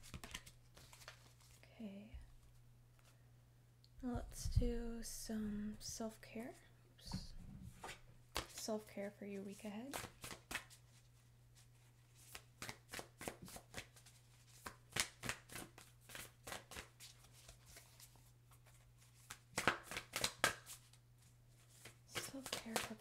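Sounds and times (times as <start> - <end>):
cards being shuffled: 0.0 - 1.6, 7.8 - 8.7, 9.6 - 11.0, 11.8 - 23.0.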